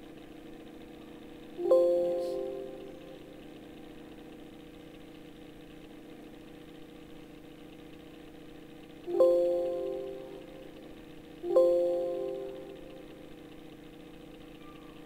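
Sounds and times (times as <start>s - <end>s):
low electrical hum: 0.0s - 15.0s
computer warning chime: 1.6s - 3.4s, 9.1s - 13.3s.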